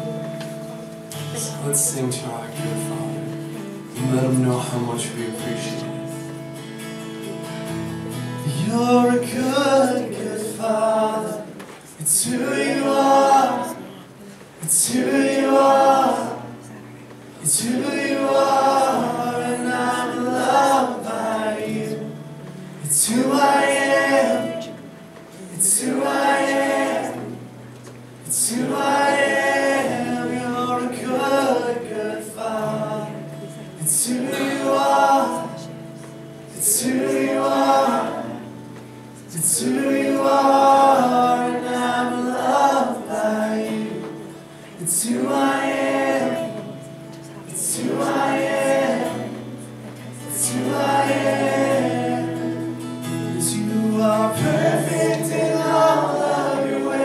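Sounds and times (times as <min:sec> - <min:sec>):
acoustic guitar strumming: 0:00.0 - 0:57.0
man singing: 0:01.4 - 0:06.1, 0:08.4 - 0:13.9, 0:53.2 - 0:57.0
congregation singing along: 0:07.2 - 0:57.0.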